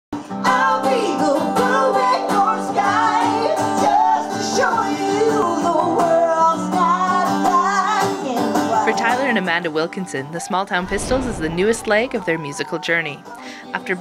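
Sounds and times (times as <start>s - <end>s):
person singing: 0.2s - 9.1s
strummed acoustic guitar: 0.2s - 14.0s.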